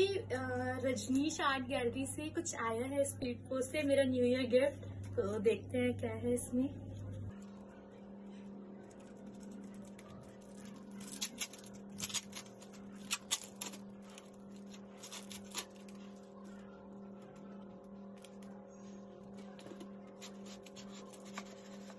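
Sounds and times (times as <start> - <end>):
steady low hum: 0.0 - 21.9
parcel wrapping crinkling and tearing: 7.3 - 21.9.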